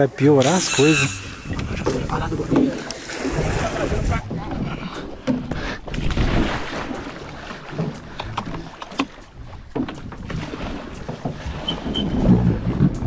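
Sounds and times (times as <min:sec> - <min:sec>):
knocks and clicks on jet ski: 0:07.8 - 0:10.4.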